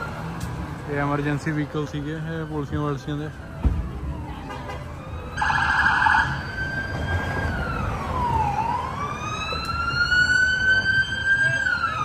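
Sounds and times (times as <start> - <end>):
police siren warbling and wailing: 1.9 - 12.0.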